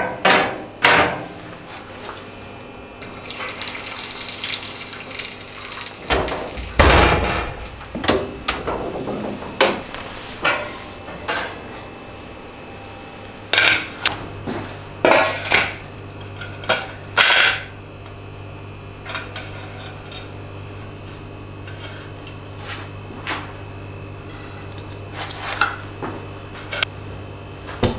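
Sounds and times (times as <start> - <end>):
metal grill basket and trays clanking: 6.0 - 9.6.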